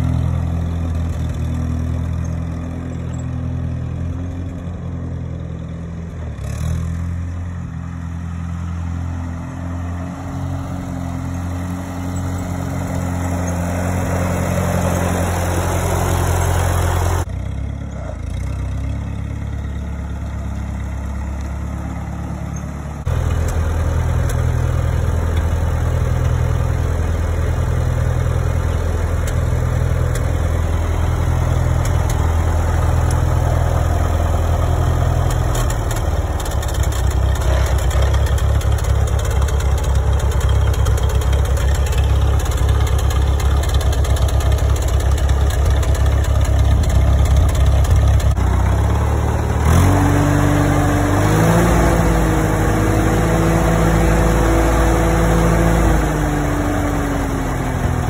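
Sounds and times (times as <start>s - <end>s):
tractor engine running and revving: 0.0s - 58.0s.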